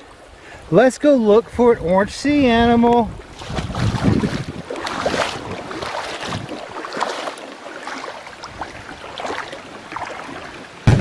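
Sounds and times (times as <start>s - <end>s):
water lapping over rocks: 0.0s - 11.0s
wind buffeting microphone: 0.1s - 7.0s.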